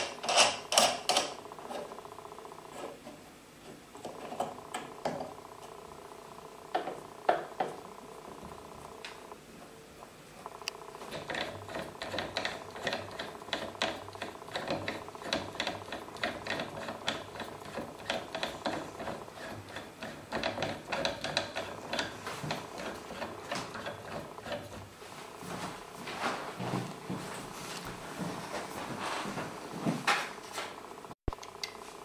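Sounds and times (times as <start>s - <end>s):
faint hum: 0.0s - 32.0s
lathe rhythmic clicking clatter: 10.5s - 24.8s.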